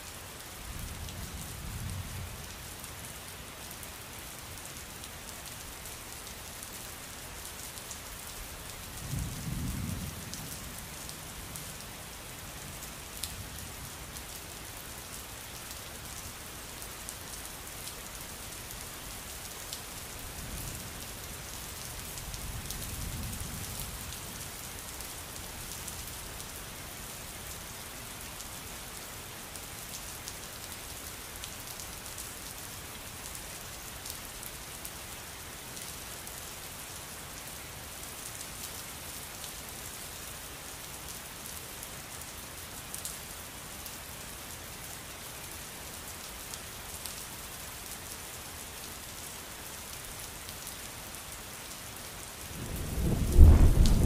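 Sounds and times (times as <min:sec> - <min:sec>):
heavy rain falling: 0:00.0 - 0:54.0
low rumble of thunder: 0:09.0 - 0:11.4, 0:52.5 - 0:54.0.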